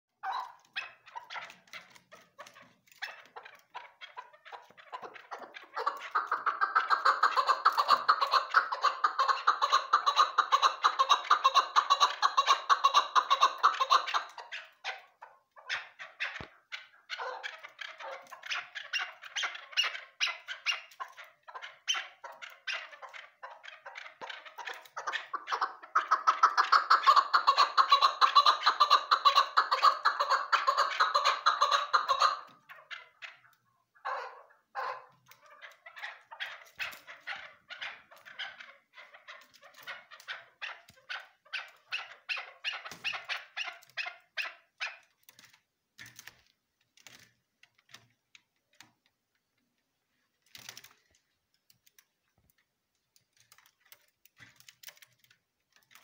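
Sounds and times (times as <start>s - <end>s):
partridge calling: 0.2s - 45.0s.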